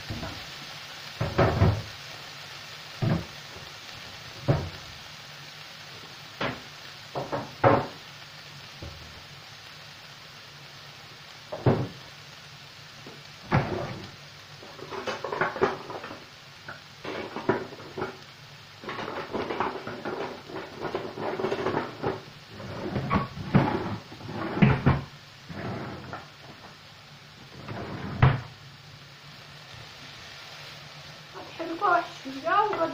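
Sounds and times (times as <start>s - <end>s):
potatoes sizzling in oil: 0.0s - 32.9s
dishes clattering: 14.8s - 16.1s, 17.1s - 18.2s, 18.9s - 22.2s.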